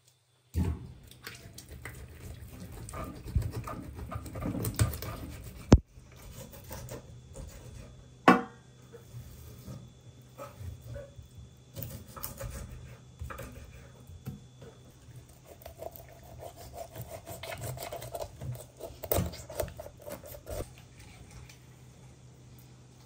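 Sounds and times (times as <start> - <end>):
knife cutting on a wooden board: 11.8 - 13.7, 15.4 - 20.6.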